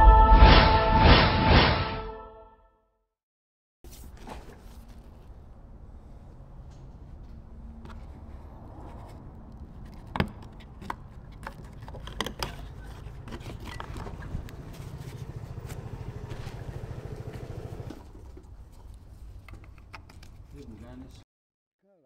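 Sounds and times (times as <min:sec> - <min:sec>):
vehicle engine running: 0:13.9 - 0:18.0.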